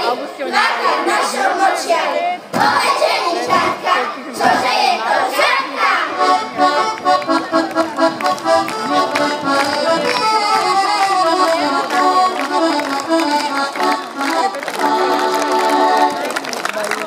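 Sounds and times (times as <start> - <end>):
children singing: 0.0 - 6.4
accordion folk music: 2.6 - 17.0.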